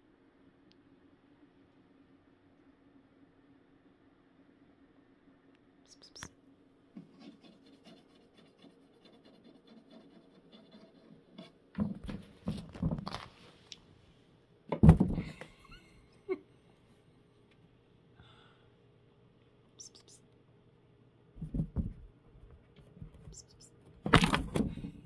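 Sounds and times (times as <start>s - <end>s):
kitten scratching inside cabinet: 7.0s - 12.8s
bumps against wooden panels: 21.4s - 22.1s.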